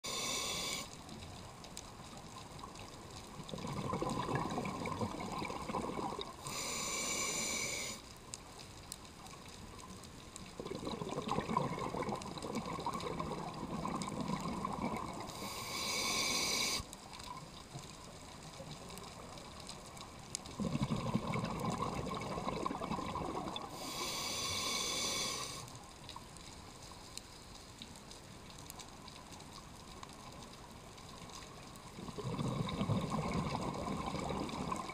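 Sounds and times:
regulator air hiss: 0.0 - 0.9, 6.4 - 8.0, 15.3 - 16.9, 23.7 - 25.7
bubbles burbling underwater: 3.4 - 6.4, 10.5 - 15.4, 20.5 - 23.8, 31.9 - 34.9.

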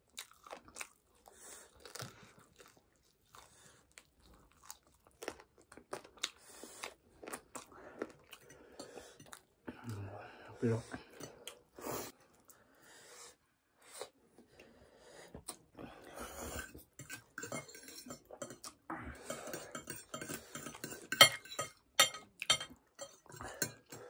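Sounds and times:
forks clinking on ceramic plates: 17.0 - 18.6, 19.3 - 24.0.

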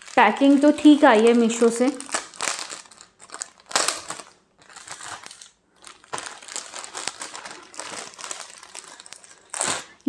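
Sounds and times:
plastic bags crinkling: 0.0 - 10.0.

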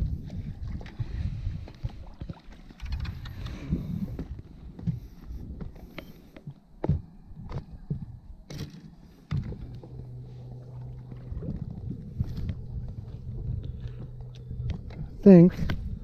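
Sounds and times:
wind rumble on microphone: 0.0 - 5.8, 9.3 - 16.0
steady low hum: 0.0 - 16.0
knocks and clicks of fish handling: 0.8 - 10.2.

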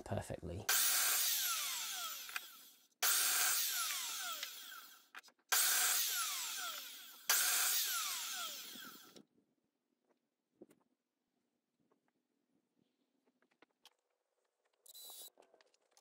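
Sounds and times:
mitre saw cutting timber: 0.7 - 9.2.

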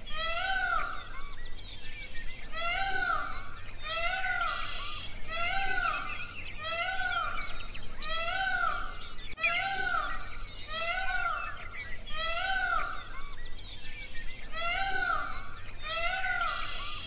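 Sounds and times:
peacock calling: 0.0 - 17.0.

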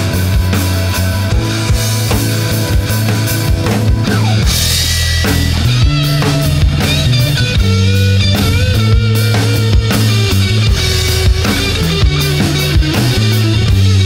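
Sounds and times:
lead guitar with bent notes: 0.0 - 14.0
rock music with drums and bass: 0.0 - 14.0.

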